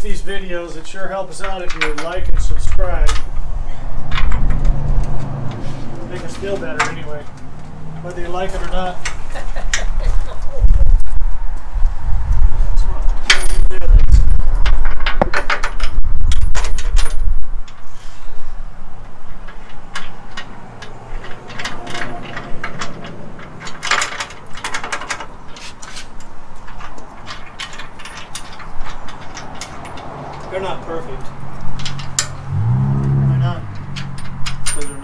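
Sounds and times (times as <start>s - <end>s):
metal bolts and nuts clinking: 0.7s - 5.1s, 6.1s - 9.8s, 13.2s - 17.8s, 19.1s - 32.7s, 33.7s - 35.0s
heavy low rumble: 30.5s - 35.0s.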